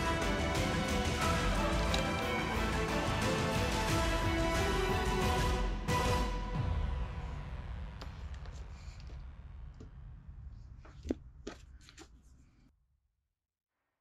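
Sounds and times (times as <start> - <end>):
background music: 0.0 - 8.9.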